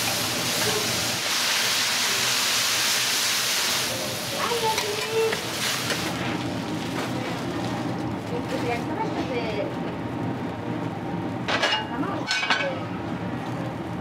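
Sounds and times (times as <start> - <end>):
noodles sizzling on hot griddle: 0.0 - 10.6.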